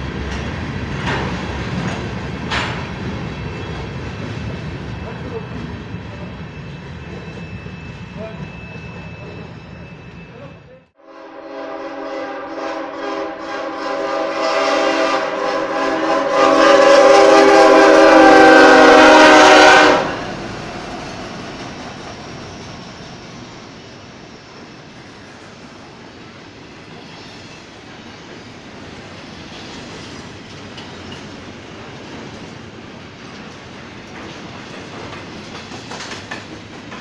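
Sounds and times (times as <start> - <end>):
freight cars rumbling and clattering: 0.0 - 10.3
locomotive air horn: 11.0 - 20.4.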